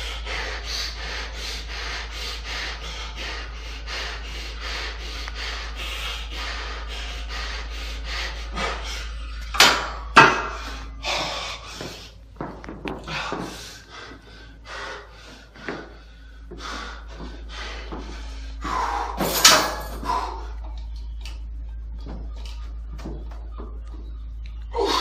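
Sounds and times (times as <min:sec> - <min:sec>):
gym equipment clatter: 0:19.1 - 0:20.1.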